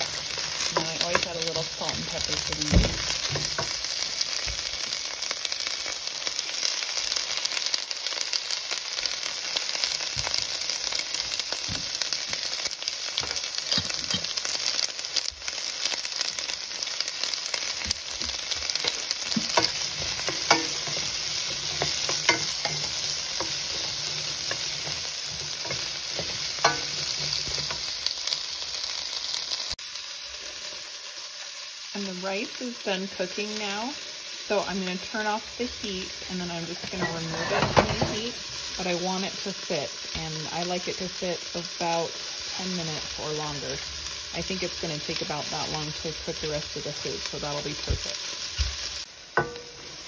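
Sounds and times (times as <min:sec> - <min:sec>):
vegetables sizzling in oil: 0:00.0 - 0:50.0
wooden spoon knocking pan: 0:18.2 - 0:27.9, 0:49.4 - 0:50.0.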